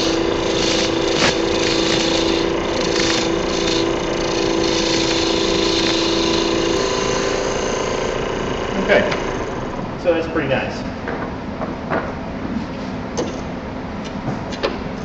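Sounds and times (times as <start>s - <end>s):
gouge cutting spinning wood: 0.0s - 10.4s
lathe motor hum: 0.0s - 11.1s.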